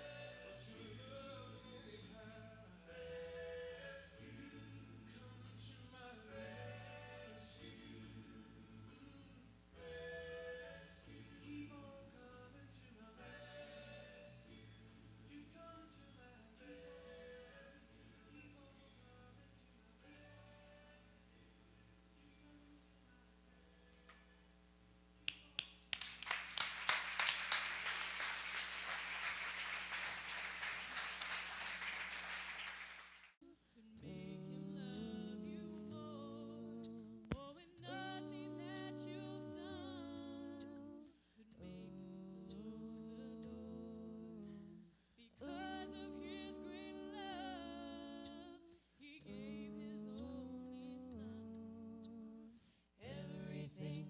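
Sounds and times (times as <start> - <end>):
congregation applauding: 25.9 - 33.4
person singing long notes: 34.0 - 44.8, 45.4 - 54.0.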